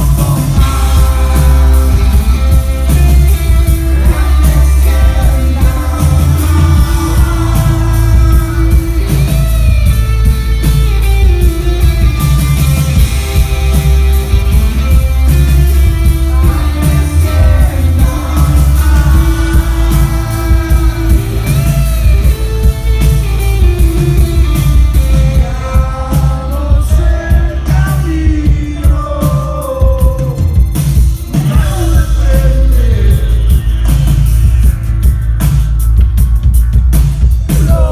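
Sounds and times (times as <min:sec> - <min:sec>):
person singing lead vocals: 0:00.0 - 0:10.8, 0:12.9 - 0:30.6, 0:31.3 - 0:34.0, 0:37.5 - 0:37.9
rock band playing live: 0:00.0 - 0:37.9.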